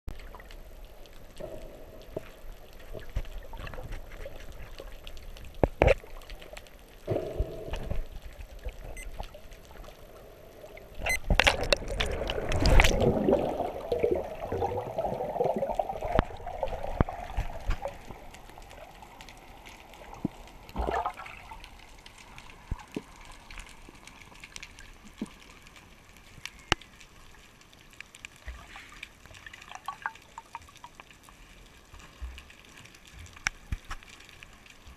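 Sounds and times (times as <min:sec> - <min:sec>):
underwater clicks: 0:00.1 - 0:10.0, 0:10.8 - 0:27.1, 0:33.2 - 0:34.5
splashing and bubbles: 0:00.1 - 0:27.4, 0:28.2 - 0:34.9
water sloshing and gurgling: 0:00.1 - 0:34.9.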